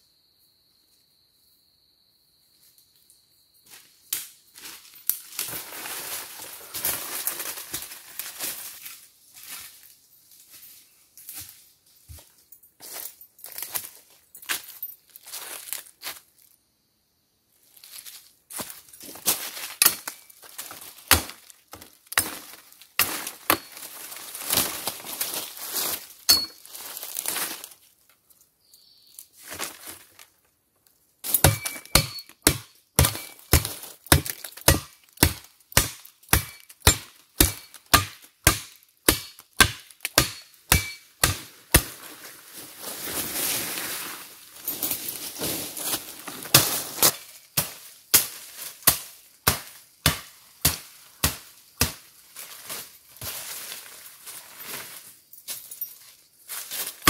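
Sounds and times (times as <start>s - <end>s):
metal blade chopping wood: 19.8s - 20.2s, 21.1s - 21.4s, 22.1s - 23.8s, 26.3s - 26.6s, 31.3s - 42.0s, 48.9s - 52.0s
rustling in brush: 41.9s - 47.0s.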